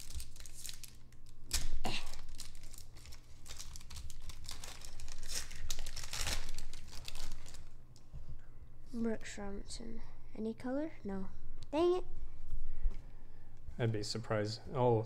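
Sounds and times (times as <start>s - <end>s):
card pack wrapper crinkling: 0.0s - 7.8s.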